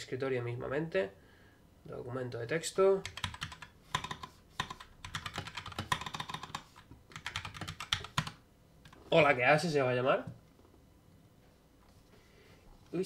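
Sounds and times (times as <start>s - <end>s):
mechanical keyboard typing: 3.0s - 8.4s.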